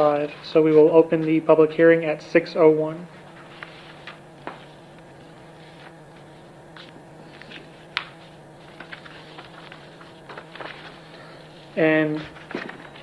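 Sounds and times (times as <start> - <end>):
low room hum: 0.0 - 13.0
faint paper rustles: 3.1 - 13.0.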